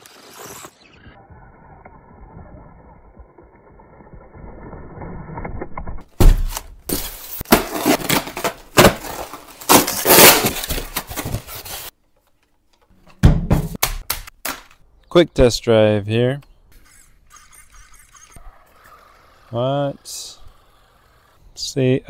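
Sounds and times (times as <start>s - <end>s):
rc crawler driving on dirt: 0.0s - 6.0s, 16.7s - 22.0s
foam packing crunching and cracking: 6.4s - 11.9s.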